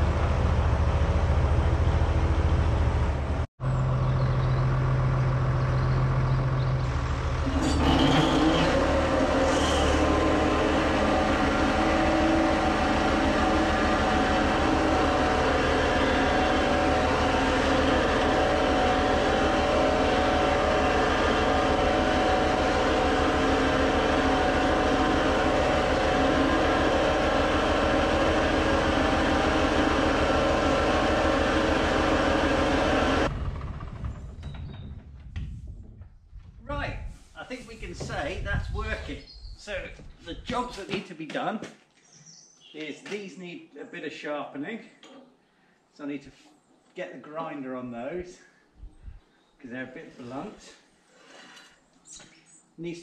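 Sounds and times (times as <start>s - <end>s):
tractor diesel engine running: 0.0s - 36.0s
hydraulic hedge trimmer working: 6.9s - 34.0s.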